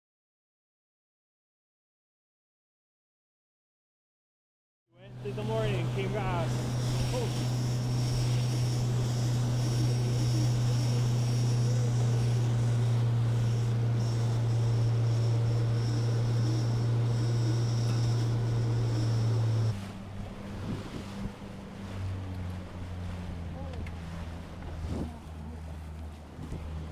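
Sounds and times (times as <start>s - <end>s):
outboard motor droning: 5.0s - 26.9s
water rushing past hull: 18.2s - 26.9s.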